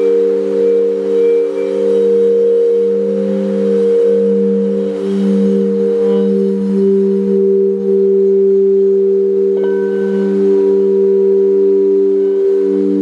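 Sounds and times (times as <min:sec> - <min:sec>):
crystal singing bowls ringing: 0:00.0 - 0:13.0
bright singing bowl strike: 0:09.5 - 0:13.0.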